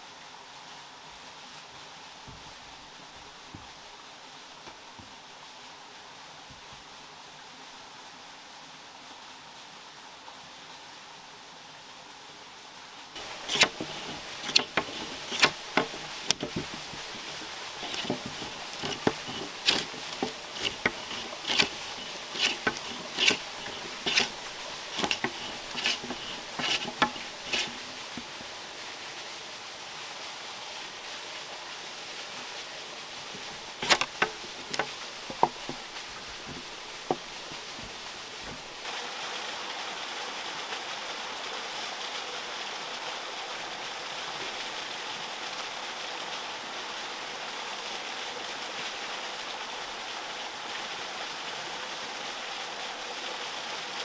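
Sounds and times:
steady hiss: 0.0 - 54.0
hand tool strikes: 13.2 - 28.3, 33.8 - 35.9.

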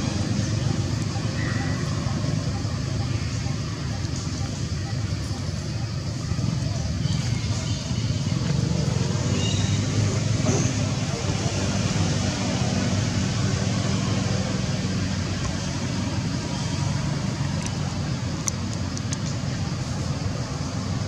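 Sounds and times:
outdoor rumble and hiss: 0.0 - 21.0
sharp clicks: 18.4 - 19.4.

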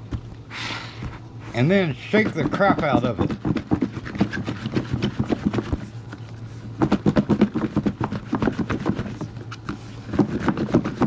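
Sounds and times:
leaves rattling in a covered bowl: 1.8 - 5.6.

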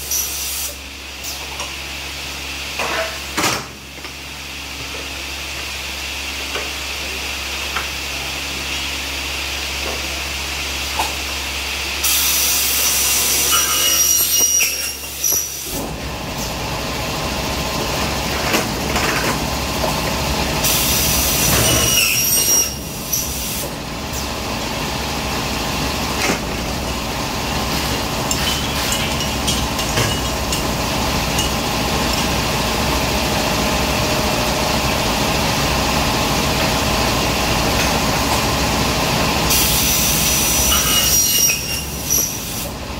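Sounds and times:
saw blade screeching through metal: 12.8 - 15.7, 21.4 - 23.3, 40.5 - 42.5.

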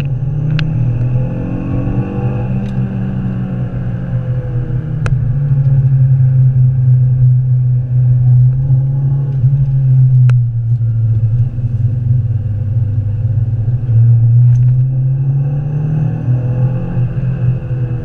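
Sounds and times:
car engine running: 0.0 - 18.0.

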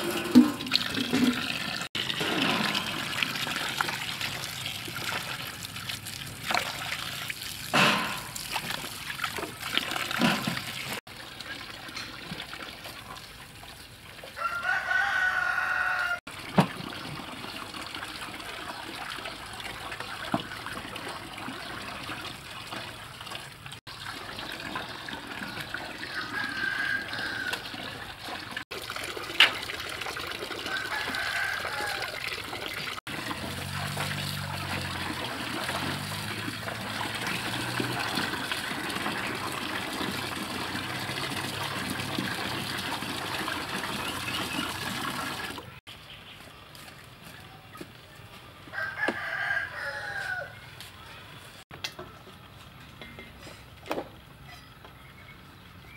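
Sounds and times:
tap water into metal basin: 0.0 - 5.6, 24.1 - 45.7
rooster crowing: 14.4 - 16.3, 26.1 - 27.6, 30.7 - 32.2, 48.7 - 50.6.

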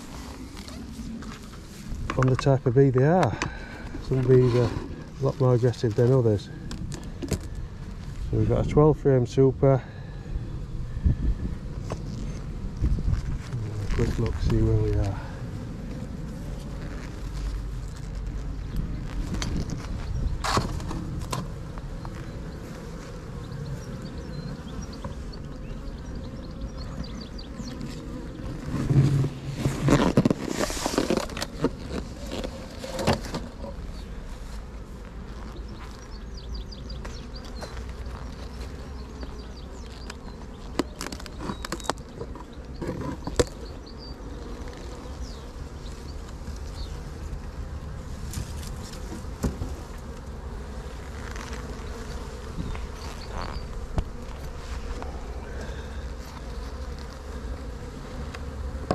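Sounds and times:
honeybees buzzing: 0.0 - 58.9.

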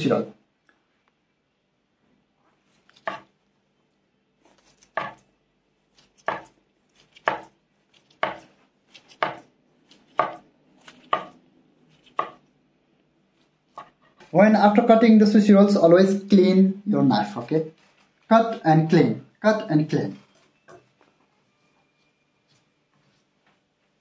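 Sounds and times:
knife slicing sushi roll: 4.4 - 5.3, 5.9 - 12.4.

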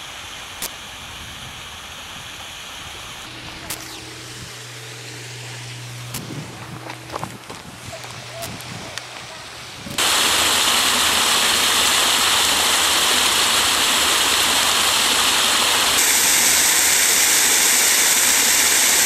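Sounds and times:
waterfall pouring over rocks: 10.0 - 19.0.

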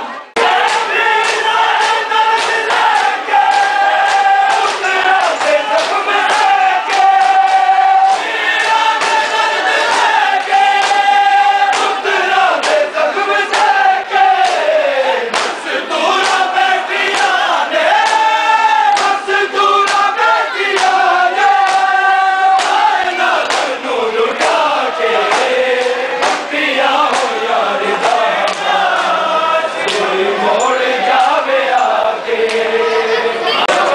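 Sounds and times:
men chanting in unison: 0.4 - 33.9
chest beating slaps: 15.3 - 15.6, 22.5 - 23.8, 25.3 - 27.4.

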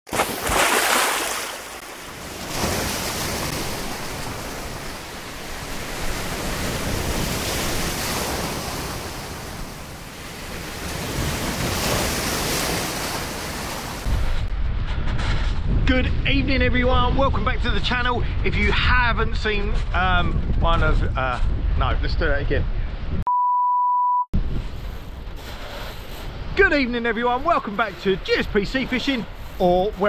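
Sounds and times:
small waves breaking: 0.1 - 14.1.

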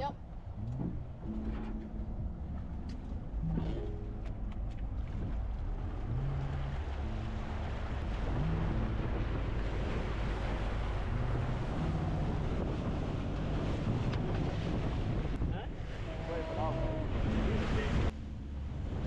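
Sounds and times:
motorboat engine hum: 0.0 - 19.0
water rushing along hull: 0.0 - 19.0
wind buffeting microphone: 0.0 - 19.0.

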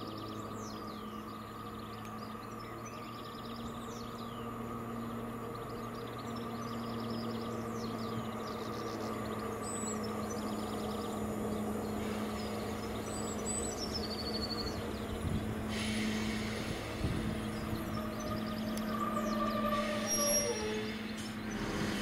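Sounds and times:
diesel railbus engine droning: 0.0 - 22.0
hiss: 15.6 - 17.6, 21.3 - 22.0.

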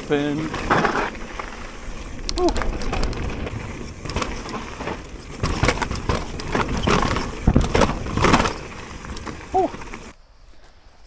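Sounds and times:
bike knocking and rattling: 0.0 - 10.2
tyres rolling over loose stones: 0.0 - 10.2
low rumble: 0.6 - 6.5.

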